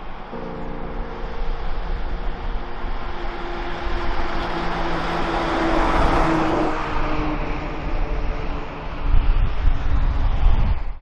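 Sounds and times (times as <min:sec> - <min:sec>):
box truck driving past: 0:01.1 - 0:09.1.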